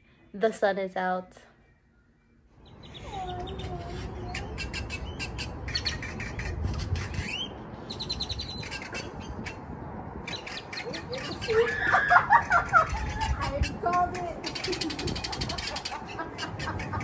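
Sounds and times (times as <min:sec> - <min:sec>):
songbirds chirping: 0:00.0 - 0:17.0
wind rumble on microphone: 0:03.4 - 0:17.0.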